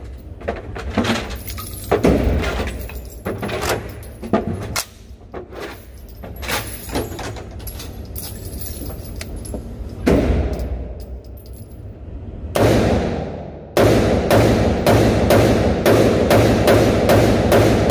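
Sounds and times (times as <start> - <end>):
gunshots echoing indoors: 10.0 - 11.0, 12.5 - 17.9.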